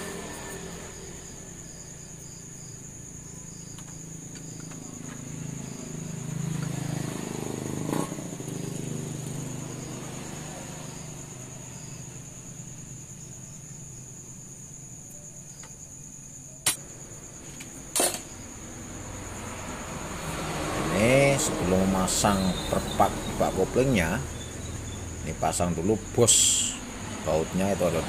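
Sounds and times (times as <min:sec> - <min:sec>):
crickets trilling: 0:00.0 - 0:28.0
sharp click: 0:16.6 - 0:16.8.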